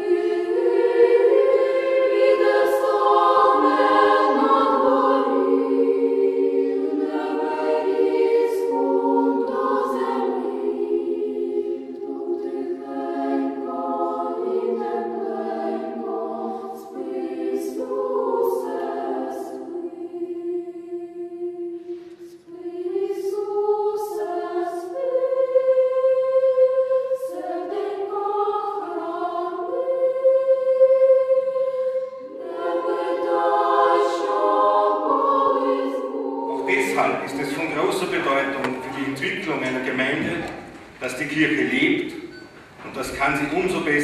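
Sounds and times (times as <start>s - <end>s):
choir singing a slow hymn: 0.0s - 42.4s.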